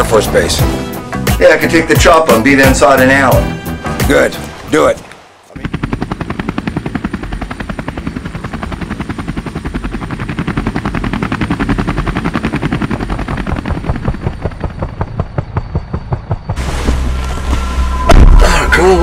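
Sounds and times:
helicopter rotor blades chopping: 5.5 - 17.6.

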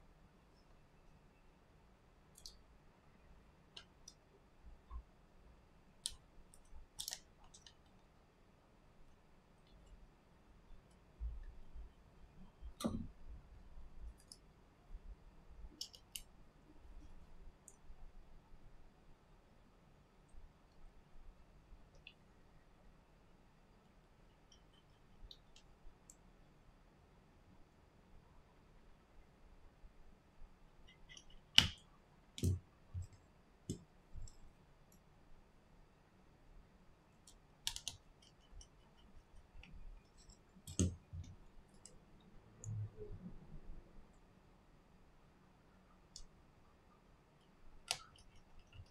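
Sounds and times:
faint clicks of small metal parts: 2.3 - 2.7, 6.0 - 8.1, 10.7 - 14.5, 15.6 - 17.9, 23.8 - 26.2, 30.8 - 35.1, 37.2 - 42.9, 47.3 - 48.9.

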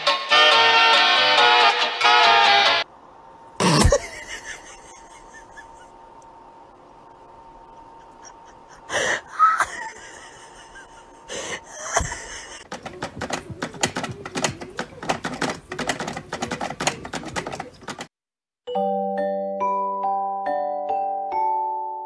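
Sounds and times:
low room hum: 2.8 - 18.0.

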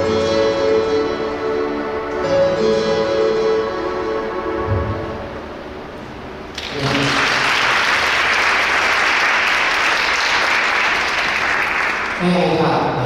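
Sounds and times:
music ending: 0.0 - 6.9
audience applauding: 6.5 - 12.6.

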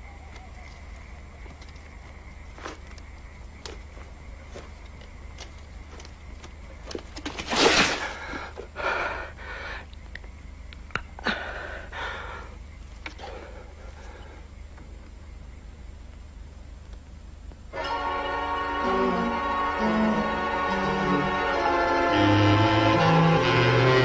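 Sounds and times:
crashing into rustling undergrowth: 6.9 - 8.4
man gasping for breath: 11.2 - 12.6
faint scattered clicks: 16.1 - 17.6.

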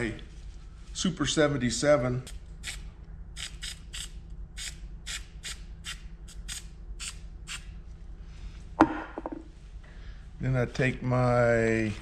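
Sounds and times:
can knocking on wooden bench: 8.8 - 9.5.

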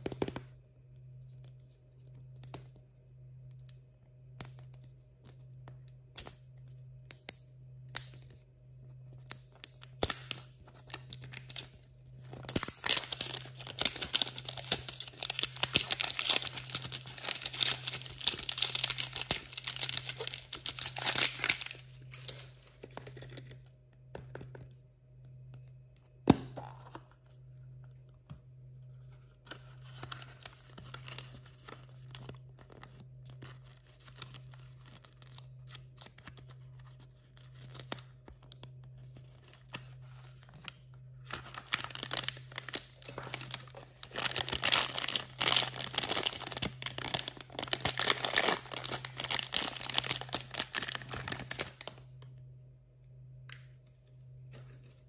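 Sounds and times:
steady low hum: 0.0 - 55.0
paper wrapper tearing and crinkling: 12.4 - 23.4, 41.2 - 51.9.

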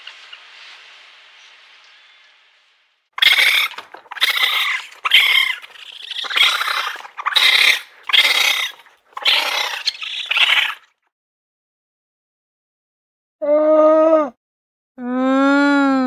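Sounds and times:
raccoon chittering: 3.2 - 10.9.

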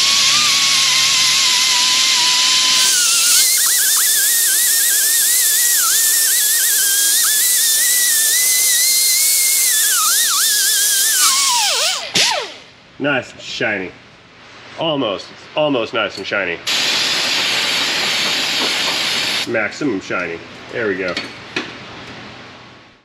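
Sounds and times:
rotary tool whining: 0.0 - 12.7.

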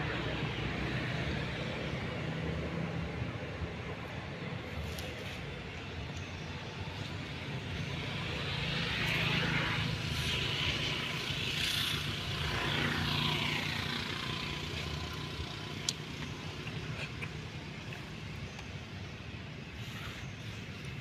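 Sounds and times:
motor engine passing by: 7.0 - 17.9.

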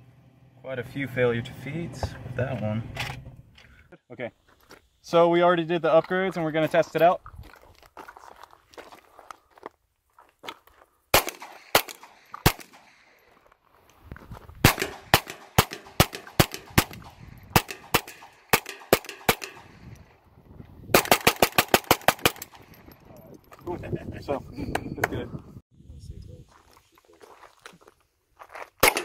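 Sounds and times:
pistol shots: 11.1 - 13.1, 14.6 - 19.8, 20.9 - 22.7, 28.8 - 29.0.

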